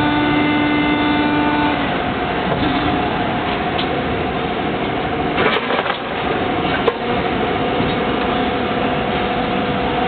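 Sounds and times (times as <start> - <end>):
clatter: 5.4 - 7.0.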